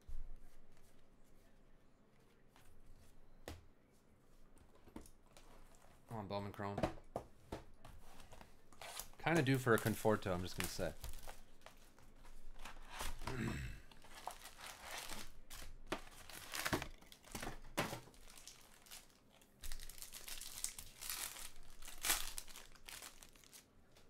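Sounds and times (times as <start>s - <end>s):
foil wrappers crinkling and tearing: 8.7s - 12.0s, 13.9s - 24.0s.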